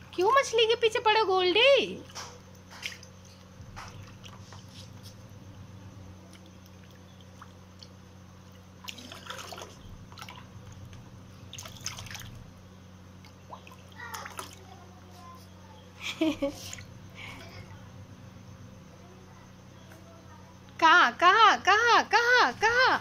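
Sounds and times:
water splashing in a tub: 1.9s - 4.7s, 6.2s - 15.0s.

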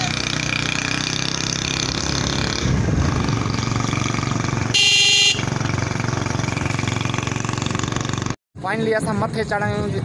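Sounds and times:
vehicle engine running: 0.0s - 8.4s
loud horn blast: 4.7s - 5.5s.

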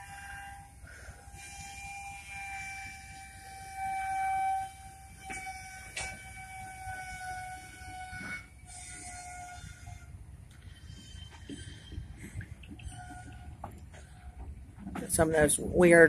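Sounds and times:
train wheels squealing on rails: 0.0s - 15.4s
low rolling rumble: 10.1s - 16.0s.

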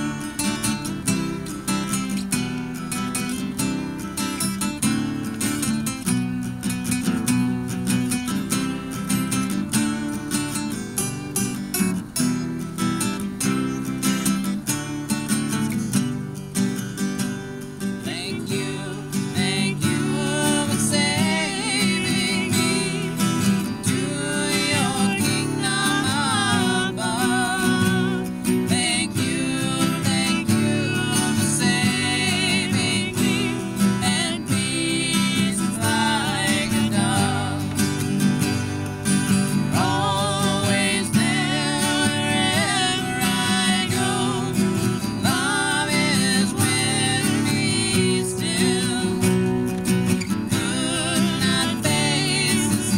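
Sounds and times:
acoustic guitars strummed and picked: 0.0s - 52.9s
person singing: 18.0s - 38.2s, 39.4s - 49.6s, 50.3s - 52.9s.

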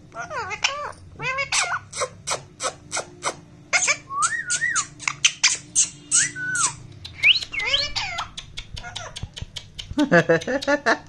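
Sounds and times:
parakeet whistled calls: 3.7s - 8.3s.

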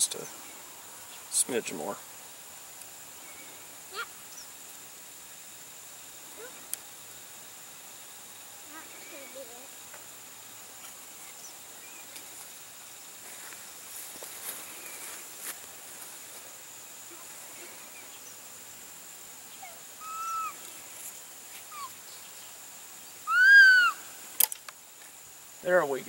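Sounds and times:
insects humming: 0.0s - 26.0s
animal whistle-like calls: 19.5s - 20.6s, 21.7s - 22.0s, 23.2s - 24.1s.

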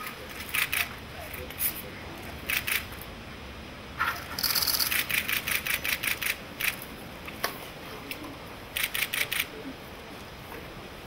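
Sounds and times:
camera shutters clicking: 2.5s - 2.9s, 4.3s - 6.8s, 8.8s - 9.5s.

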